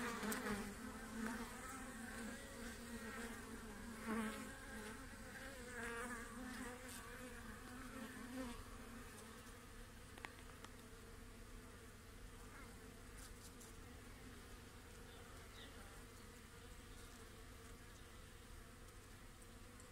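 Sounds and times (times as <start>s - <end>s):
bees buzzing: 0.0s - 13.0s.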